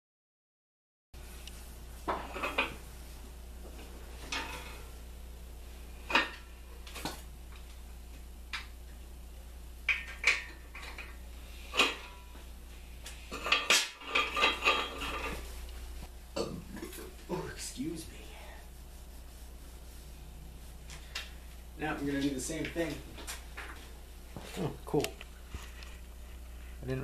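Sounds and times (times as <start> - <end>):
low hum: 10.5 - 26.8
metal tools clinking: 13.4 - 15.4.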